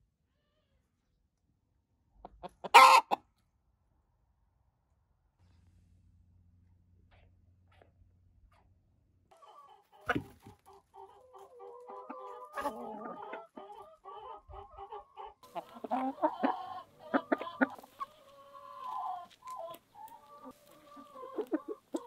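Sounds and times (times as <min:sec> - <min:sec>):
hens clucking: 0:02.1 - 0:03.2, 0:09.3 - 0:22.0.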